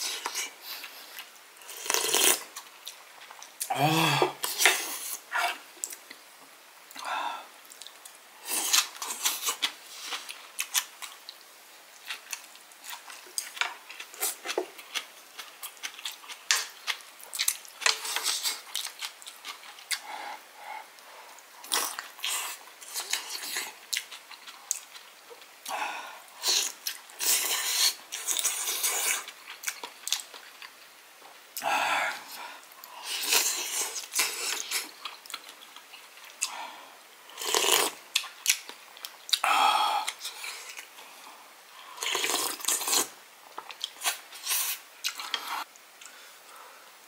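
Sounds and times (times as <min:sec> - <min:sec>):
slurping noodles: 0:37.4 - 0:38.0.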